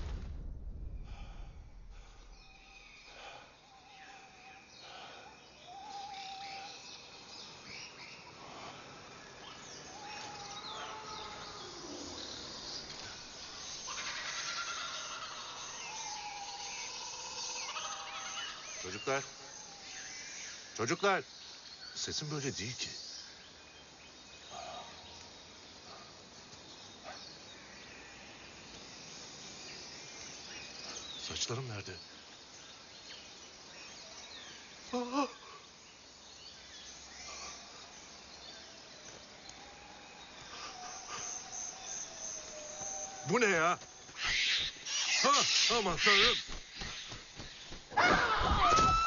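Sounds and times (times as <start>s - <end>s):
steady high hiss: 0.0s - 49.0s
birds chirping and whistling: 40.3s - 49.0s.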